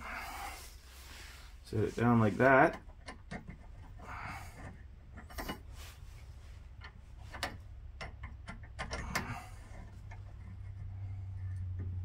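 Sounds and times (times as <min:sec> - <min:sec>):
tow hook clicking and tapping: 0:02.7 - 0:04.0, 0:06.8 - 0:10.8.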